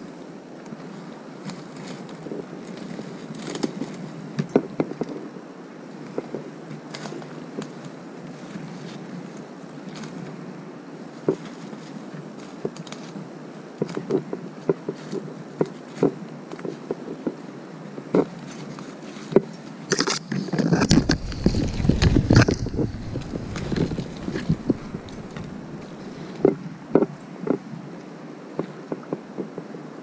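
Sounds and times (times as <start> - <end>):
twigs snapping: 19.9 - 26.5
branches brushing: 20.0 - 26.6
footsteps crunching on leaves: 20.8 - 26.3.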